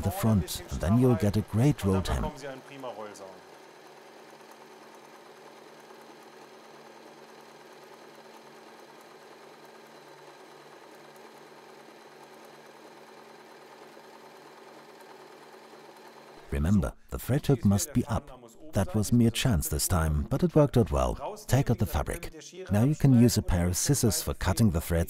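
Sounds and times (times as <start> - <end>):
sewing machine running: 0.0 - 16.6.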